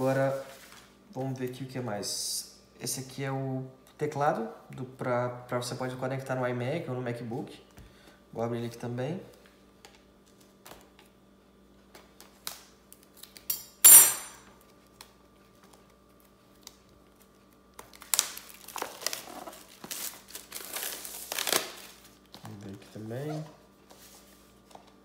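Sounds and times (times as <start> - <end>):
plastic wrap crinkling: 14.7 - 25.0.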